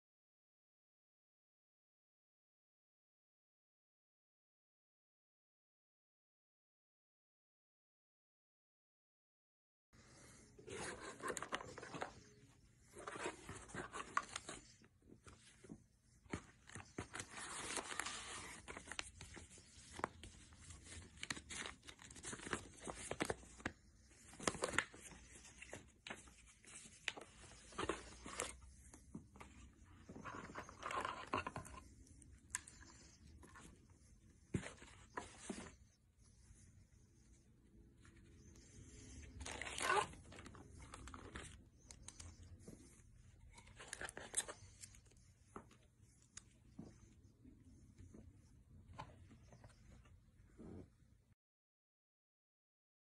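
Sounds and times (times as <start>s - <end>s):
paper and plastic rustling: 10.6s - 31.9s, 38.2s - 46.5s.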